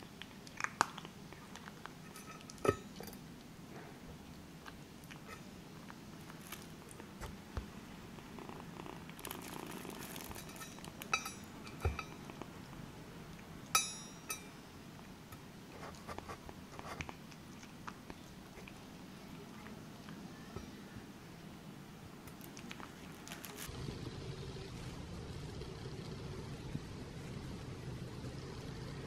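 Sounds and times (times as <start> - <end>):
kitten licking and chewing: 0.0 - 13.7, 14.9 - 21.2, 22.2 - 23.7.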